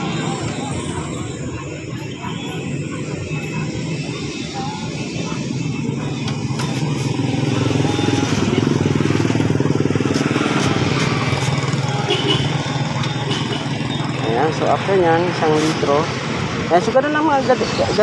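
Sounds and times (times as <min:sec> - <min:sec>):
small motorcycle engine running: 0:02.7 - 0:14.2.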